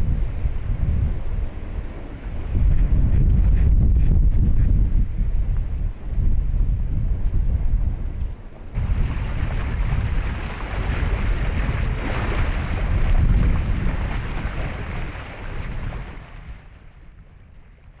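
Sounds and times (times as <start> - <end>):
wind rumbling on microphone: 0.0 - 18.0
small waves washing against rocks: 8.8 - 16.9.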